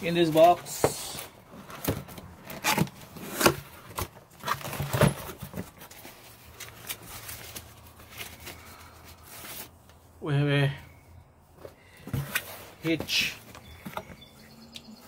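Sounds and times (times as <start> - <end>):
paper wrapping rustling: 0.2 - 9.9.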